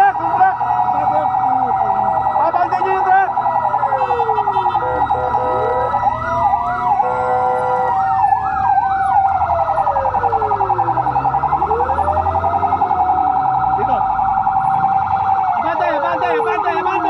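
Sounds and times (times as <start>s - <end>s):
fire engine sirens: 0.0s - 17.0s
horn blasts: 4.0s - 5.7s.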